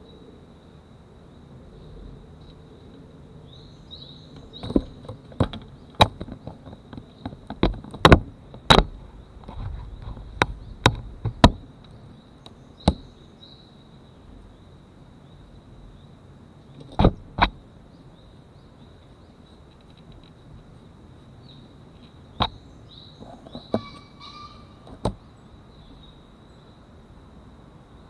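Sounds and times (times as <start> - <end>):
faint high-pitched whine: 0.0 - 28.0
taps and knocks on camera: 4.6 - 8.9.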